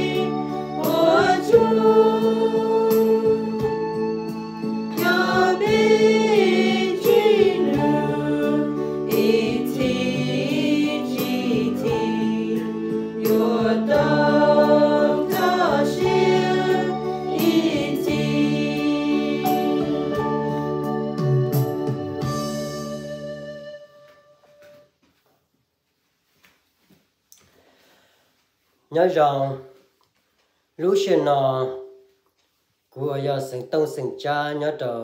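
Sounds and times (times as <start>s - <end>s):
young voices singing a hymn: 0.0s - 20.9s
held organ chords: 0.0s - 24.8s.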